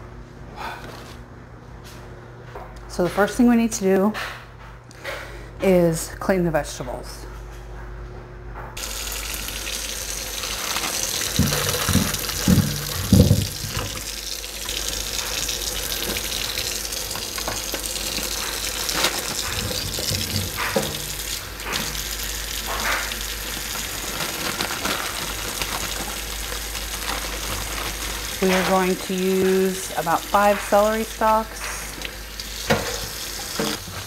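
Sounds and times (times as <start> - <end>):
faucet running into sink: 8.8 - 23.6, 28.2 - 34.0
potatoes thumping into sink: 10.7 - 14.1, 17.2 - 23.2.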